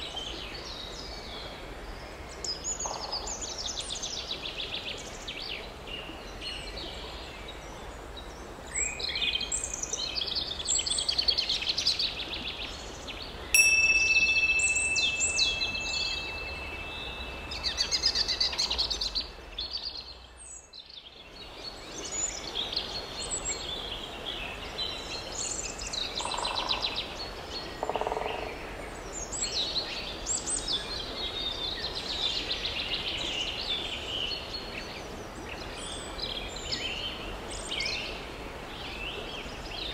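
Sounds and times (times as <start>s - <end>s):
small birds singing: 0.0s - 39.9s
bell-like chime ringing: 13.6s - 18.7s.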